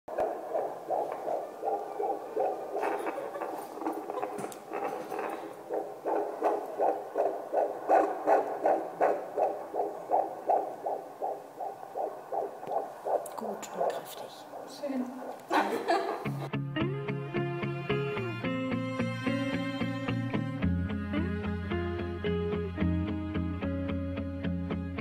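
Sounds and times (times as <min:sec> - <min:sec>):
fetal heartbeat through doppler speaker: 0:00.1 - 0:16.4.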